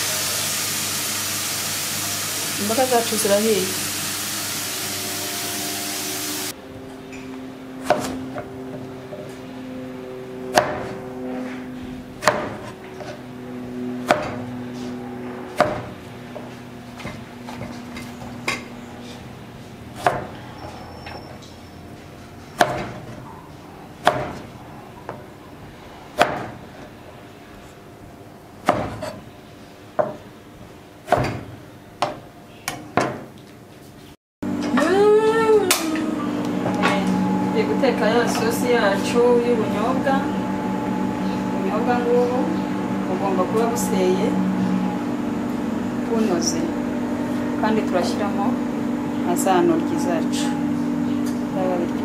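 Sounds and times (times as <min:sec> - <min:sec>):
greens sizzling in a wok: 0:00.0 - 0:06.5
knife chopping on cutting board: 0:07.8 - 0:08.5, 0:10.5 - 0:11.0, 0:12.2 - 0:13.2, 0:14.0 - 0:14.5, 0:15.6 - 0:16.0, 0:20.0 - 0:20.4, 0:22.6 - 0:23.2, 0:24.0 - 0:24.5, 0:26.2 - 0:26.6, 0:28.7 - 0:29.2, 0:31.1 - 0:33.3.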